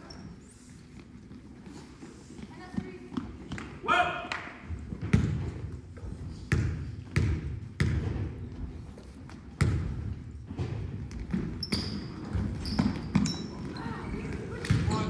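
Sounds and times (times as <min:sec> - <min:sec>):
basketball bouncing on hardwood floor: 0:04.9 - 0:05.7, 0:06.5 - 0:08.6, 0:09.6 - 0:13.8.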